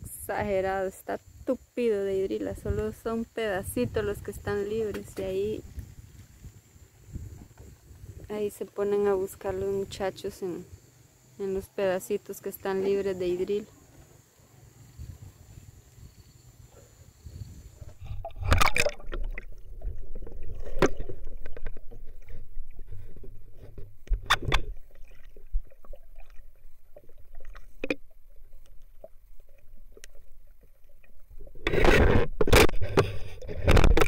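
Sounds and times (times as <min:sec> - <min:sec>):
shallow water sloshing and splashing: 0:17.8 - 0:34.0.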